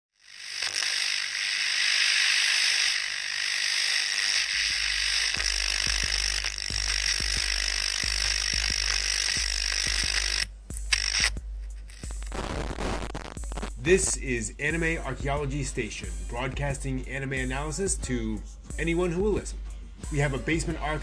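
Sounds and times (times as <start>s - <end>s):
crackling clicks: 0.2s - 13.8s
radio static hiss: 0.3s - 13.8s
low hum: 0.5s - 12.4s.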